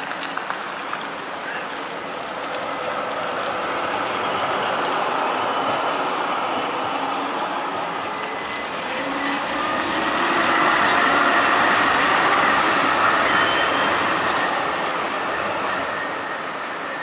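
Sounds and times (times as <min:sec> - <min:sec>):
tram wheels rolling on rails: 0:00.0 - 0:17.0
high-pitched wheel squeal: 0:08.0 - 0:17.0.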